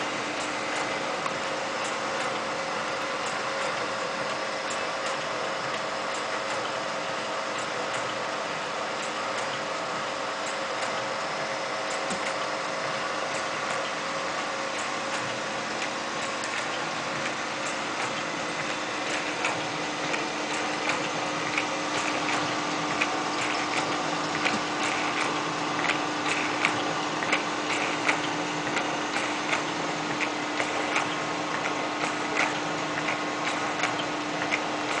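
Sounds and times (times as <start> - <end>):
machine motor hum: 0.0 - 35.0
mechanism clicks: 11.9 - 14.0, 14.8 - 35.0.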